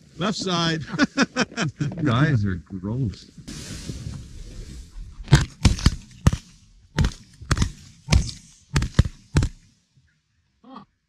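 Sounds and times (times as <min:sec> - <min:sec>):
shotgun shots: 0:05.3 - 0:09.7.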